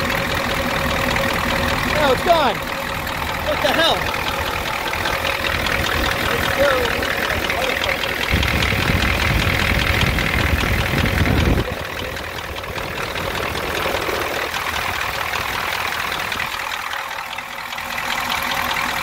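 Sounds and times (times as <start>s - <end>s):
diesel engine idling with knock: 0.0s - 19.0s.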